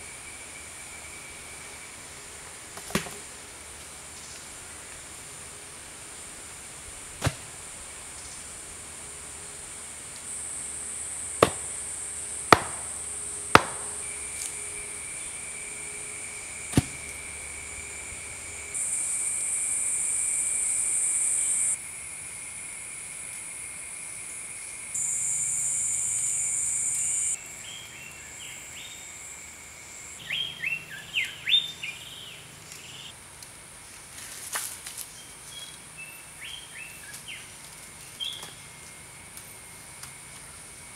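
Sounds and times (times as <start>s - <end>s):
forest insects droning: 0.0s - 40.9s
stone knocking on wooden post: 11.4s - 11.7s, 12.6s - 12.9s, 13.6s - 13.9s
bird chirping: 30.2s - 33.1s.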